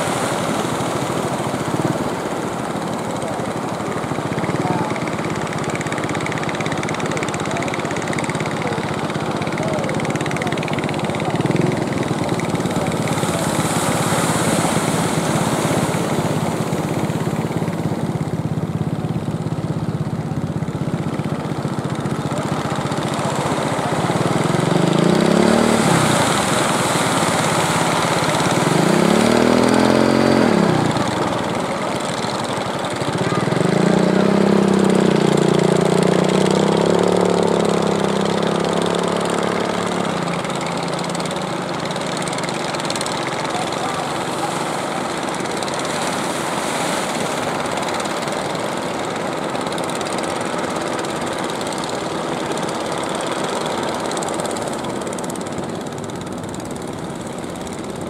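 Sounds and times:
boat engines running: 0:00.0 - 0:58.0
surf washing: 0:00.0 - 0:58.0.

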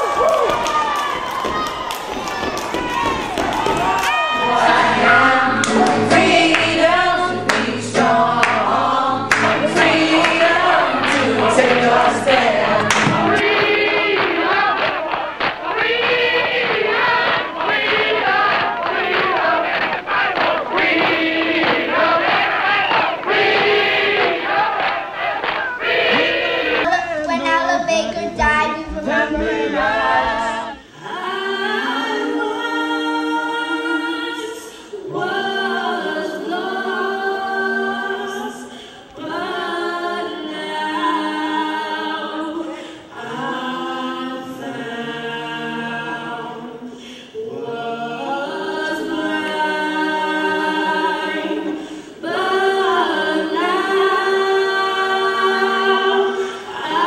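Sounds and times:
person singing unaccompanied: 0:04.4 - 0:24.4, 0:25.7 - 0:38.7.

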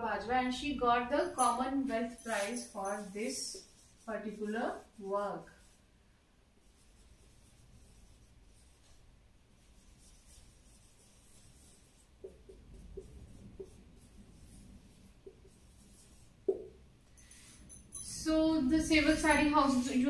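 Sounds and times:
marker writing on whiteboard: 0:01.1 - 0:05.8, 0:06.6 - 0:16.9.

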